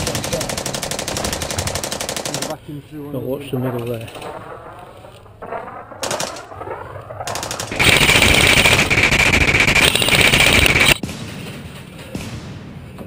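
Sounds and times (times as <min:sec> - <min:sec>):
airsoft rifle full-auto burst: 0:00.0 - 0:02.5, 0:07.3 - 0:11.0.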